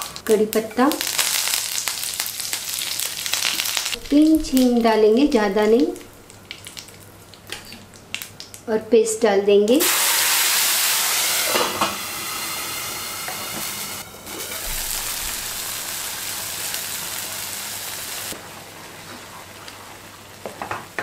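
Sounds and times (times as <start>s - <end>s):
paste sizzling in hot oil: 1.0s - 4.0s, 9.8s - 18.4s.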